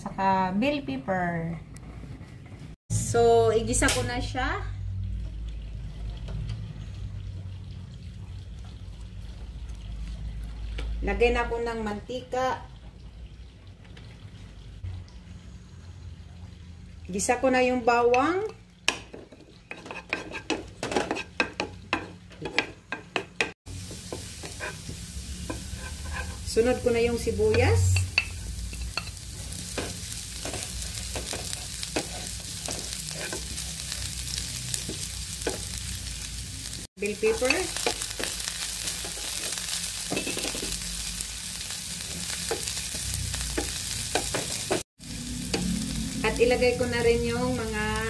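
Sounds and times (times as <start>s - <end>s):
garlic sizzling in oil: 17.2s - 48.0s
wooden spatula scraping a pan: 19.6s - 22.7s, 24.1s - 26.7s, 29.6s - 33.7s.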